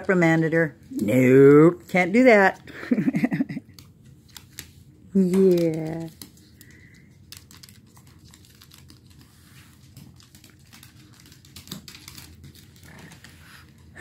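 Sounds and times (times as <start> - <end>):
dog claws clicking on wooden floor: 3.6 - 13.8.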